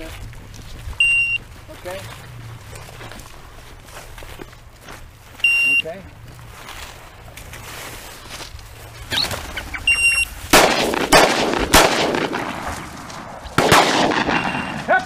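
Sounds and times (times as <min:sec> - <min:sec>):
short electronic beep: 0:01.0 - 0:01.4, 0:05.4 - 0:05.9, 0:09.8 - 0:10.3, 0:14.4 - 0:14.8
revolver gunshots: 0:10.4 - 0:15.0.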